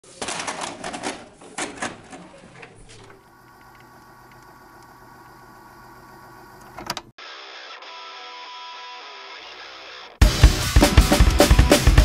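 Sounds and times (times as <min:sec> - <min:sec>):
tape deck hum with hiss: 0:02.6 - 0:07.1.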